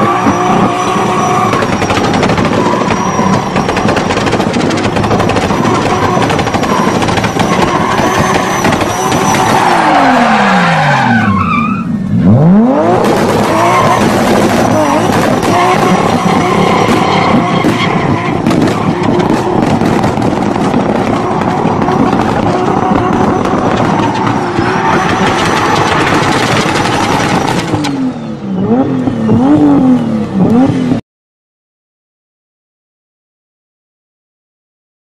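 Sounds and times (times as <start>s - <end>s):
car engine revving: 0.0s - 11.2s, 11.9s - 31.0s
tyres squealing: 5.4s - 11.9s.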